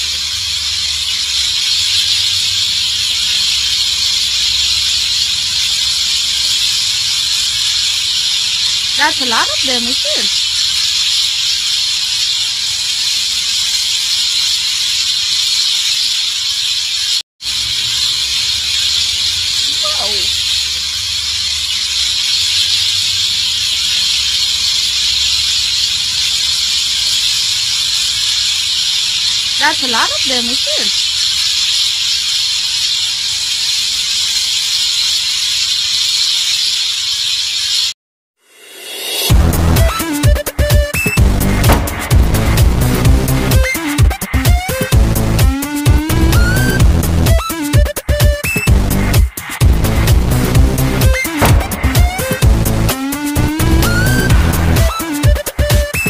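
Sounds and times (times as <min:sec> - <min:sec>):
flock of birds chattering: 0:18.8 - 0:20.8.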